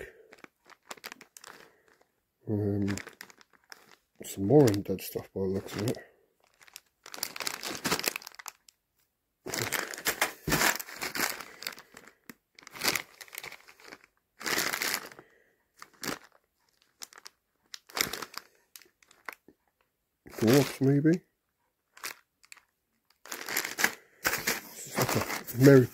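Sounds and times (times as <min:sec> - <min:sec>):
plastic bag crinkling: 0:00.0 - 0:08.8, 0:09.5 - 0:19.6, 0:20.3 - 0:21.2, 0:21.9 - 0:25.9.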